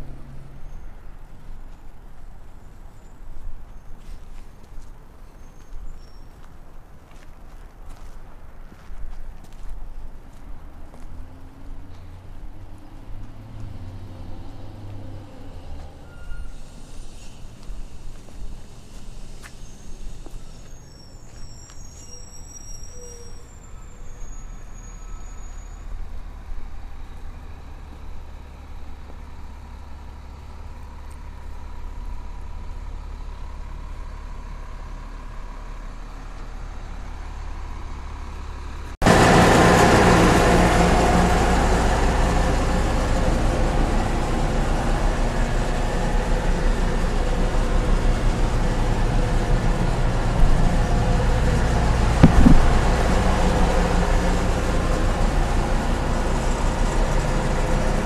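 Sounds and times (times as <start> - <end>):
low engine idle: 26.2 - 58.0
loud steady rushing noise: 52.2 - 53.9.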